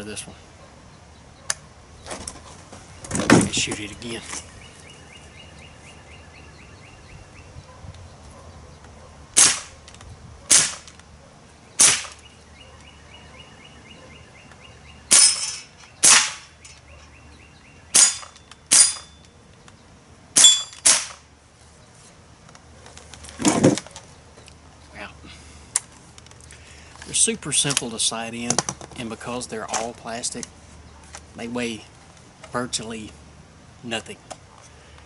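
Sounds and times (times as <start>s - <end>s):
air rifle shots: 9.4s - 9.8s, 10.5s - 11.0s, 11.8s - 12.3s, 15.1s - 16.6s, 17.9s - 19.2s, 20.4s - 21.3s.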